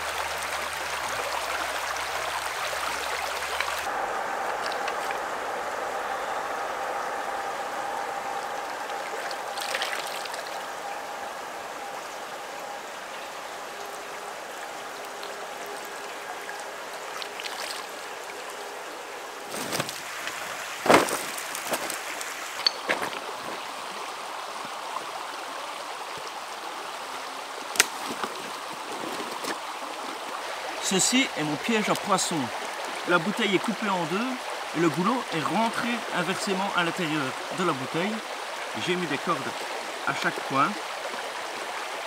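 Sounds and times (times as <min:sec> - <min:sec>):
stream running over pebbles: 0:00.0 - 0:42.0
stones clacking underfoot: 0:20.8 - 0:23.6.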